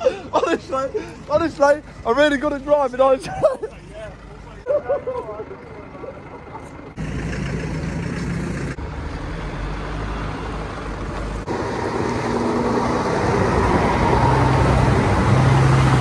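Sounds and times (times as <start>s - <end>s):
lorry diesel engine driving past: 4.0s - 16.0s.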